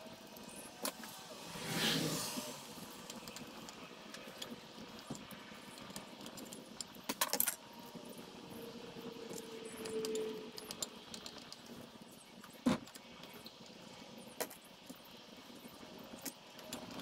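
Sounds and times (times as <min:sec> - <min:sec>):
metal parts and screwdriver clinking: 0:03.0 - 0:11.8.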